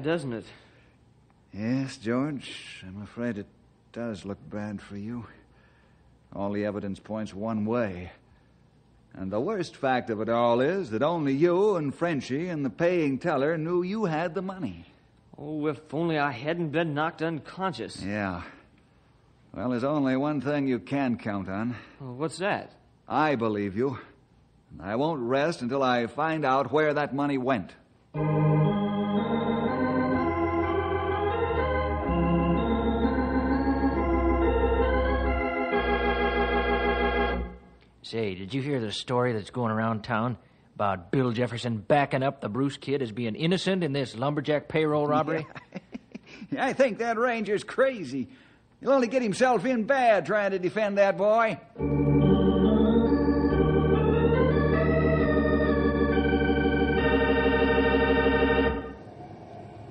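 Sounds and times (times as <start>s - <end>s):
organ playing slow chords: 28.2s - 37.8s, 51.8s - 59.9s.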